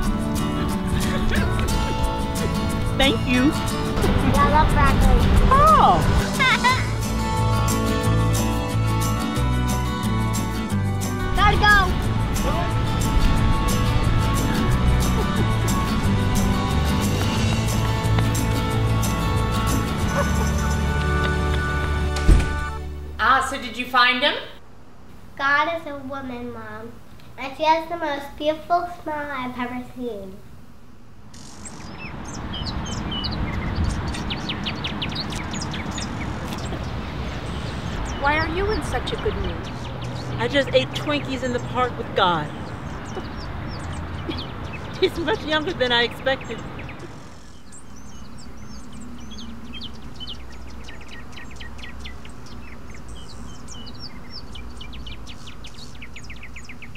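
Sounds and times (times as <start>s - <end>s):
steady low rumble: 0.0s - 7.4s
birds chirping: 0.0s - 56.9s.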